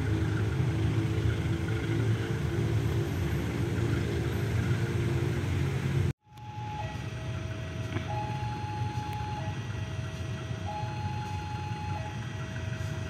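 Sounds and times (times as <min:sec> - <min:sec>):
electronic two-tone warning alarm: 0:06.3 - 0:13.0.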